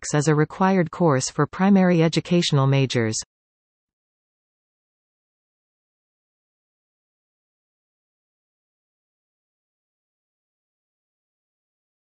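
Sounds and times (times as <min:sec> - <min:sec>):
person speaking: 0:00.0 - 0:03.2.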